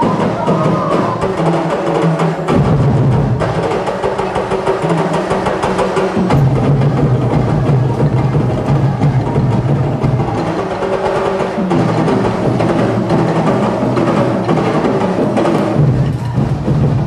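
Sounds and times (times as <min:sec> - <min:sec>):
drum corps playing: 0:00.0 - 0:17.0
deep bass drums: 0:02.5 - 0:03.8, 0:05.3 - 0:10.7, 0:11.7 - 0:17.0.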